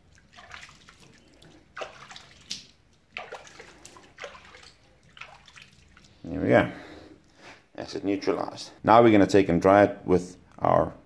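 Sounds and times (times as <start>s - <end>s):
water splashing in a metal bucket: 0.0s - 6.3s.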